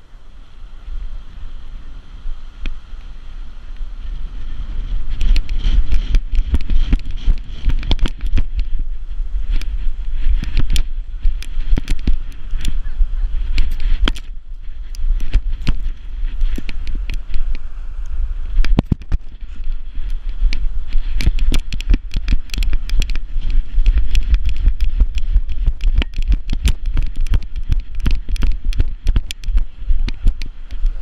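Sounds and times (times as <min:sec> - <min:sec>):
wind rumble on microphone: 0:00.0 - 0:31.0
camera rattling in mount: 0:18.6 - 0:31.0.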